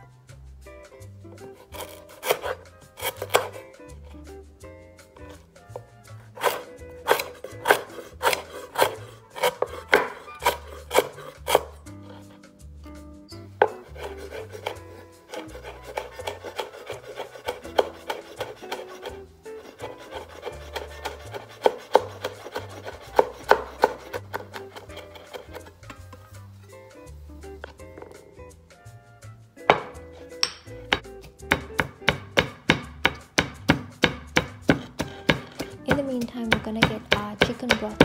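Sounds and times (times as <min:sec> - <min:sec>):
knife chopping on wooden board: 0:01.8 - 0:03.6, 0:06.4 - 0:12.2, 0:13.6 - 0:25.7, 0:29.7 - 0:38.0.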